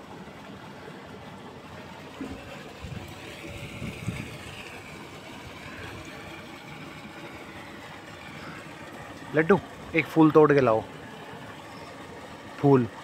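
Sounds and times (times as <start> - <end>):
background hiss and hum: 0.0 - 13.0.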